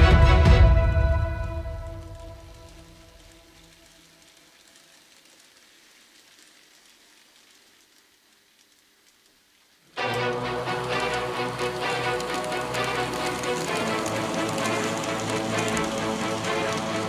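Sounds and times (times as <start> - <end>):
background music: 0.0 - 3.6, 9.9 - 17.0
faint steady hiss: 0.8 - 17.0.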